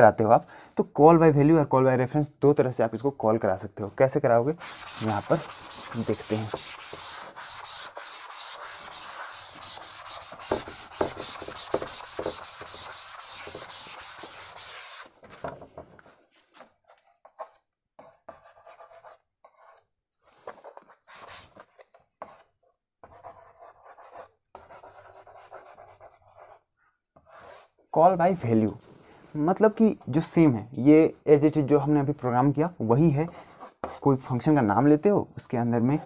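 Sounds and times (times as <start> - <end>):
chalk scratching on board: 4.6 - 15.2, 17.2 - 26.6, 27.2 - 27.8, 33.2 - 34.1
chalkboard being wiped: 4.6 - 15.4, 16.3 - 26.6, 27.2 - 27.8.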